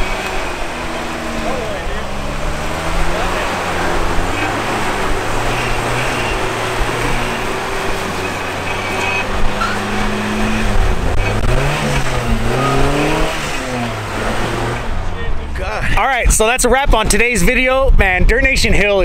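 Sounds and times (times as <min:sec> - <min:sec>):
car engine revving under load: 0:00.0 - 0:17.3.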